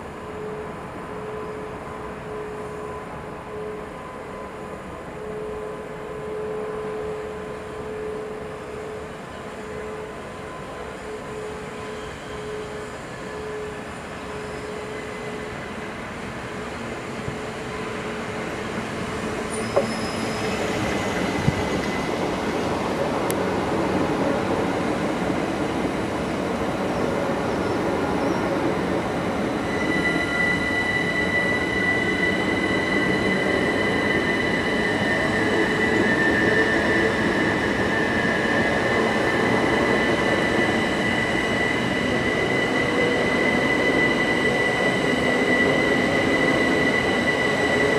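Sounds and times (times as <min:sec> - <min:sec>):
train passing on rails: 0:00.0 - 0:47.9.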